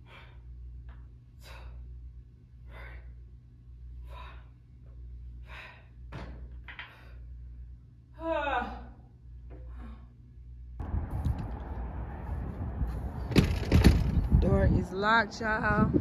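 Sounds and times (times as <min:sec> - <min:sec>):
steady low hum: 0:00.0 - 0:16.0
person breathing hard: 0:02.6 - 0:03.3, 0:05.3 - 0:06.0.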